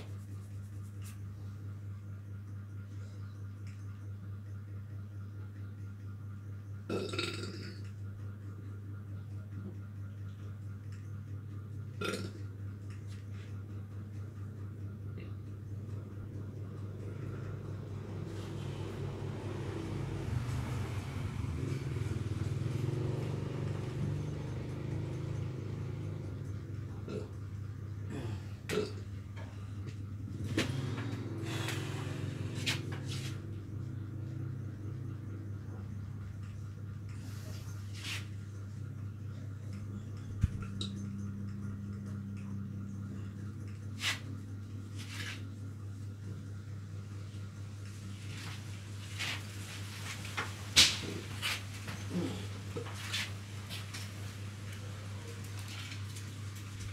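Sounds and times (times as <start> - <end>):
steady low hum: 0.0 - 56.9
vehicle engine running: 12.6 - 56.9.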